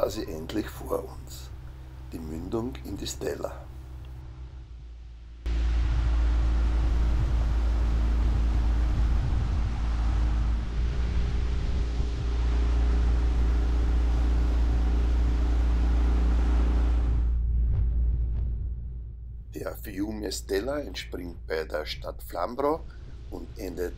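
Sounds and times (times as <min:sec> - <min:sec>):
wind and water rushing: 0:05.5 - 0:17.2
outboard motor droning: 0:05.5 - 0:17.4.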